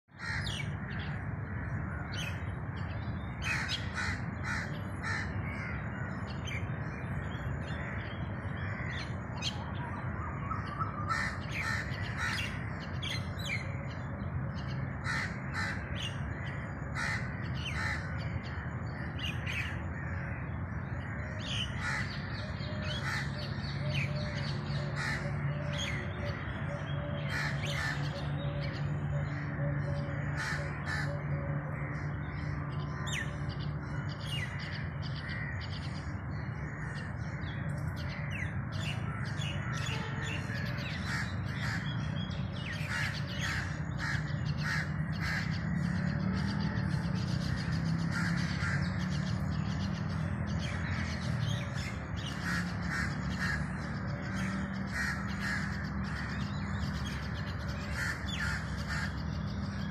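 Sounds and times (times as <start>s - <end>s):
birds calling: 0.0s - 59.9s.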